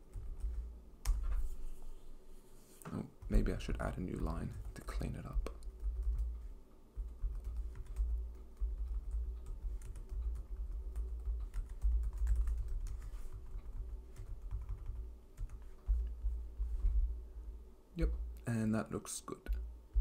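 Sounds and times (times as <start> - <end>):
typing on computer keyboard: 5.5 - 6.4, 7.0 - 16.3.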